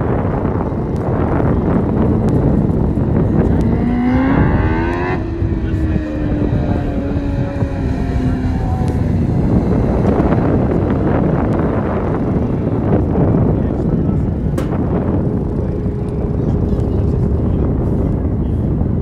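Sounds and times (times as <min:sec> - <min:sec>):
low rush of noise: 0:00.0 - 0:19.0
race car engine passing: 0:01.8 - 0:13.6.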